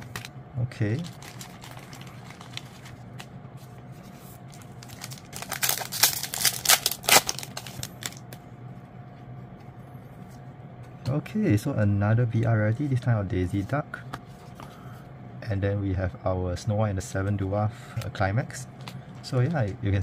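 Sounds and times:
plastic wrapper crinkling: 0.9s - 3.3s, 4.5s - 8.4s.

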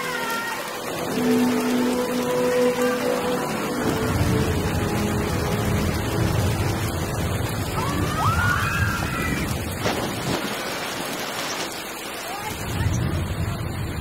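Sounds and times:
water rushing and splashing: 0.0s - 14.0s
waterfalls pouring: 0.0s - 14.0s.

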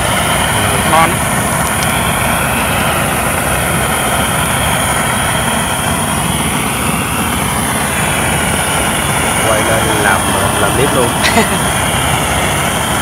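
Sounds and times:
gas blowtorch hissing: 0.0s - 13.0s.

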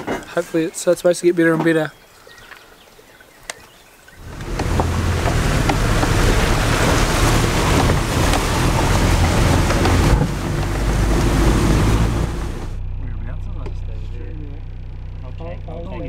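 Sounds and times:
rumble on gravel track: 3.6s - 12.8s
rattles and knocks: 4.2s - 12.8s
vehicle engine drone: 4.2s - 16.0s.

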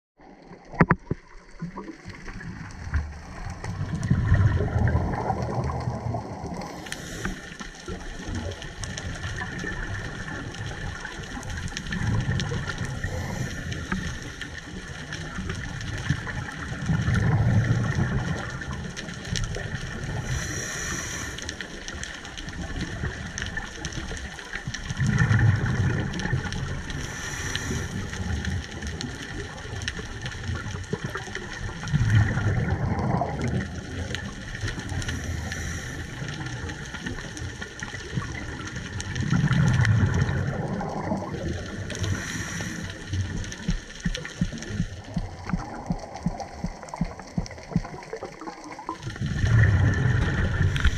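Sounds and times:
exhaled bubbles rushing underwater: 0.2s - 50.9s
regulator hiss: 20.2s - 21.5s, 27.0s - 28.0s, 42.0s - 43.1s.

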